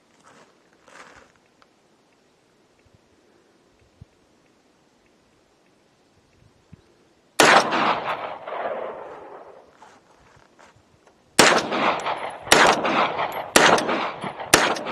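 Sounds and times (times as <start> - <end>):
pistol gunshots: 7.4 - 9.6, 11.4 - 14.9.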